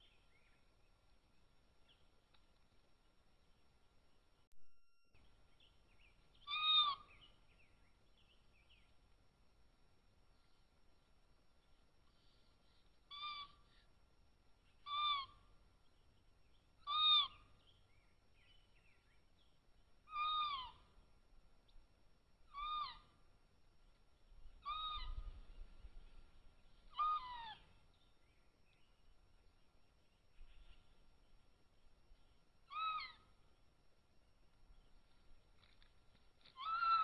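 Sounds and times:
kitten chirping calls: 6.4 - 7.1, 13.1 - 13.8, 14.8 - 15.4, 16.8 - 17.4, 20.1 - 20.9, 22.5 - 23.2, 24.6 - 25.4, 26.9 - 27.7, 32.6 - 33.4, 36.4 - 37.0.

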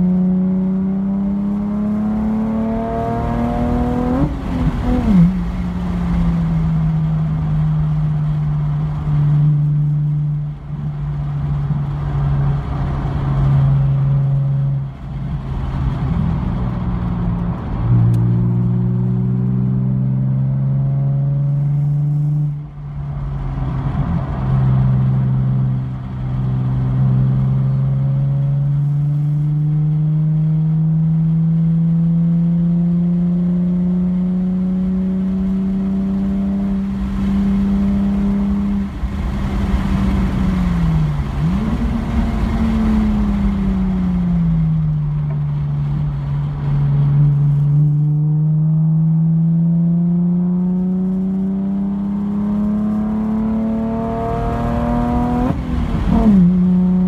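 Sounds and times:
car engine running hard: 0.0 - 57.0.

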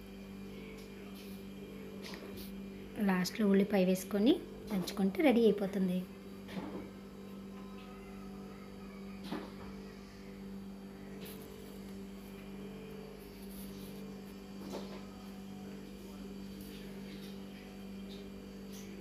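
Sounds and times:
low electrical hum: 0.0 - 19.0.

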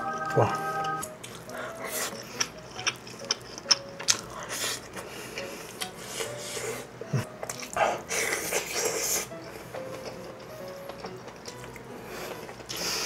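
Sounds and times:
chewing with wet mouth smacks: 1.2 - 5.0, 9.9 - 12.8.

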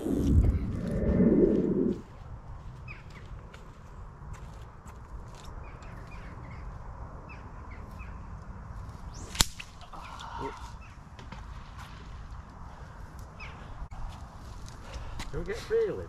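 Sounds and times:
wind rumble on microphone: 0.0 - 4.2
small birds chirping: 2.6 - 3.9, 5.2 - 11.2, 12.7 - 15.6
fishing rod whip-crack: 9.1 - 9.9.

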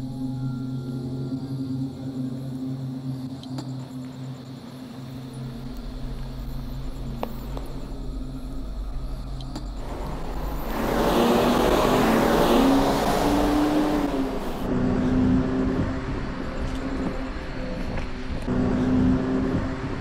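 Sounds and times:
bus driving past: 9.7 - 20.0.

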